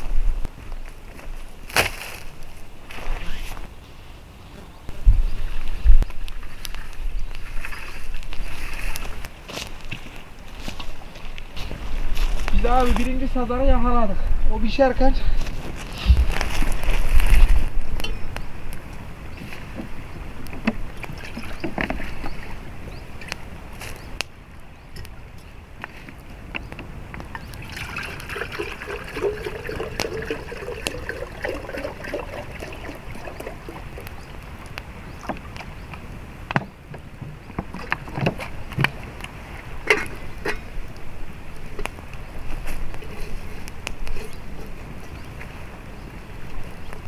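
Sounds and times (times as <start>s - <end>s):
wood fire crackling: 4.9s - 21.2s, 22.8s - 37.2s, 37.8s - 47.0s
water pouring into metal teapot: 27.6s - 34.2s.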